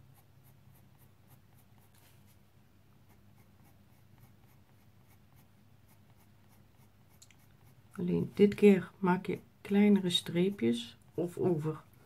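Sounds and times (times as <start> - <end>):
pencil scratching on paper: 0.0 - 2.4, 3.0 - 8.5.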